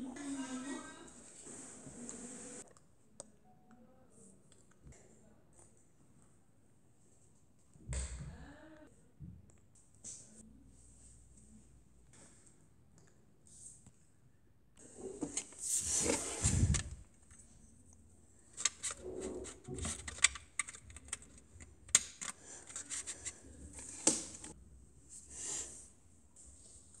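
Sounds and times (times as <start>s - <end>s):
plastic toy bricks clicking: 19.8s - 23.1s.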